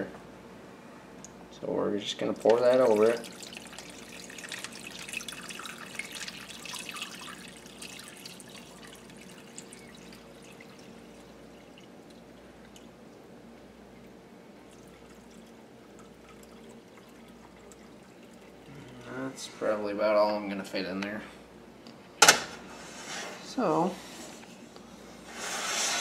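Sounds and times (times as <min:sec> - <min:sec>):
liquid pouring and splashing: 0:02.2 - 0:13.2, 0:13.9 - 0:19.0
thin liquid trickle: 0:02.2 - 0:19.4.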